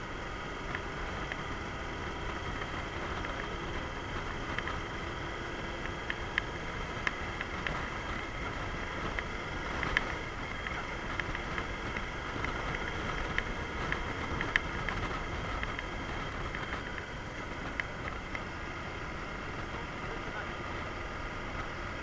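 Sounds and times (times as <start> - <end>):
motorcycle engine: 0.0 - 22.0
road rumble: 0.0 - 22.0
sharp ticks: 5.7 - 18.5.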